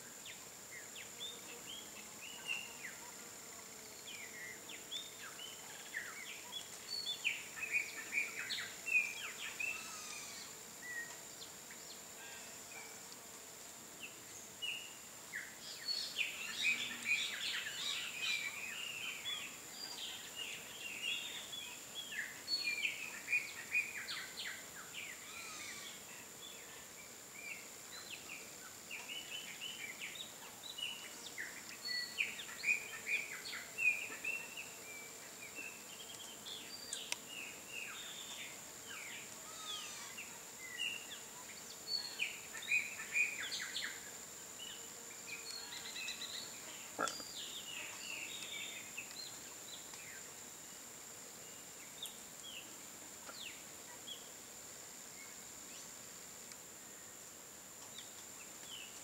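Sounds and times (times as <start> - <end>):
faint high-pitched whine: 0.0 - 59.0
small birds chirping: 27.4 - 50.3.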